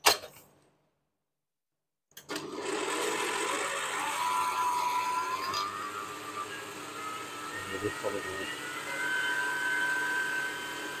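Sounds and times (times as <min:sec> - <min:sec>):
electric stand mixer running: 0:02.3 - 0:11.0.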